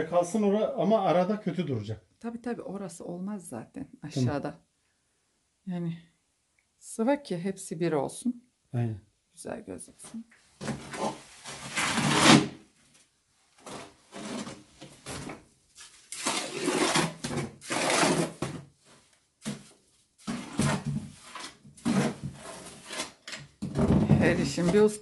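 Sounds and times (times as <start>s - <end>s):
trowel scraping wet plaster: 16.1s - 18.4s, 20.3s - 23.3s.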